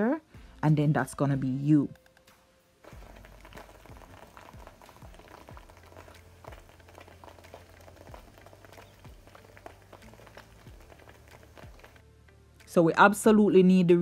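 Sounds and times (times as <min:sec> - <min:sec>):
sauce bubbles plopping and popping: 0:02.8 - 0:12.0.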